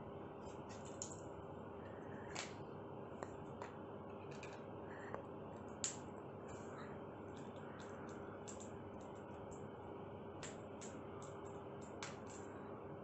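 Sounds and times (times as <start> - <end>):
faint steady hum: 0.0 - 13.0
claws and beak tapping: 10.4 - 12.5.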